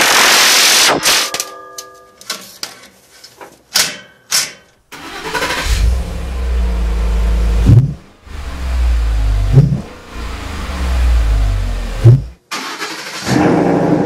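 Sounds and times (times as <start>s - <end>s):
engine cranking and idling: 4.9s - 13.4s.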